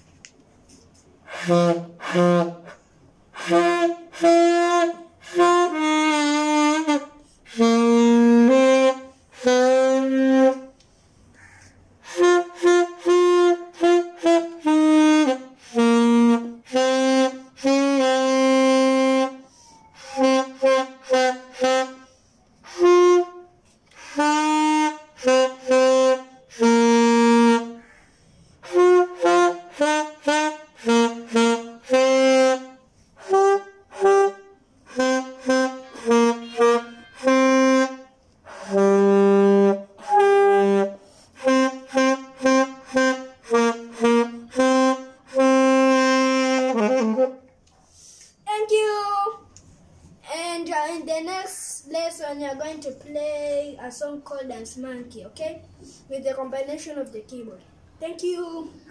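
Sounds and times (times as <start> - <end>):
alto saxophone melody: 1.2 - 10.8, 12.0 - 27.9, 28.6 - 47.7.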